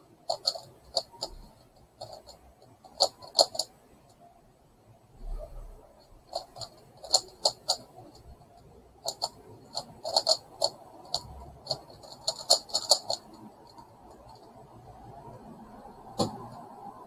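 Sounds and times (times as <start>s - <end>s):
plastic puzzle clicking: 0.3s - 3.7s, 6.3s - 8.3s, 9.0s - 14.4s.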